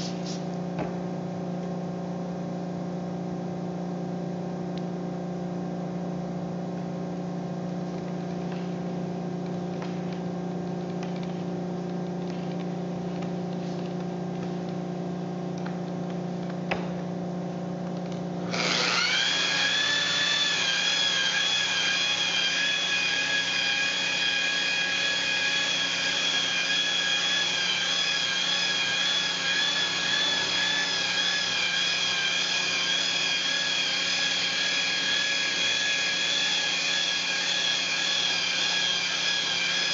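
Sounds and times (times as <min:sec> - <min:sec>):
electric polisher whining: 0:18.4 - 0:39.9.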